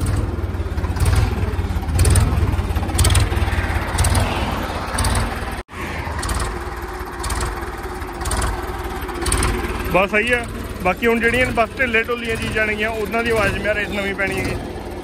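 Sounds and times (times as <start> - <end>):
tractor engine running: 0.0 - 15.0
rattle: 6.2 - 11.6.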